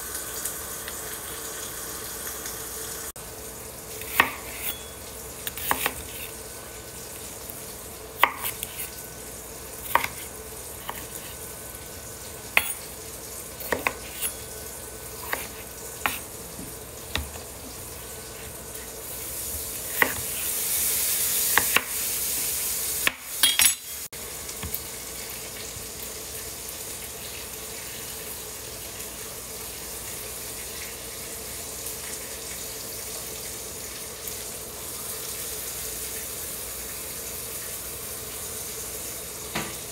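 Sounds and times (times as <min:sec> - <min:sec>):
knife chopping on cutting board: 0:04.0 - 0:06.3, 0:08.2 - 0:09.0, 0:09.8 - 0:11.4, 0:12.6 - 0:12.9, 0:13.6 - 0:14.4, 0:15.2 - 0:17.4, 0:19.9 - 0:20.4, 0:21.5 - 0:22.0.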